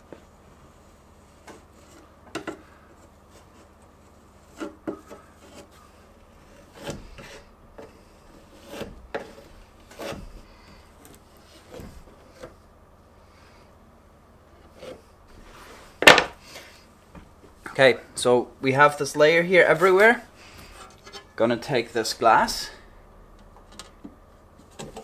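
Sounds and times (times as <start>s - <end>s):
putty knife scraping wood: 1.2s - 12.6s, 14.5s - 16.6s.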